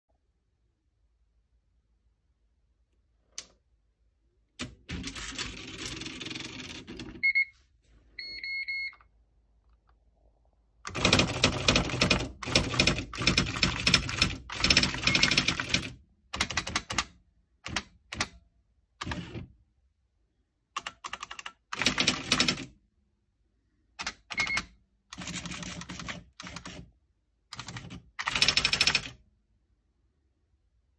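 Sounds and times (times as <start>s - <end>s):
short electronic beeps: 8.2s - 9.0s.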